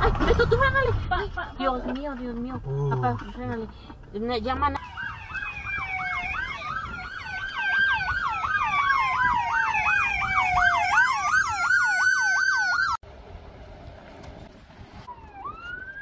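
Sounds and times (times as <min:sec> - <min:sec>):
siren fast yelp: 0:04.8 - 0:13.0
siren slow wail: 0:04.8 - 0:13.0, 0:15.0 - 0:16.0.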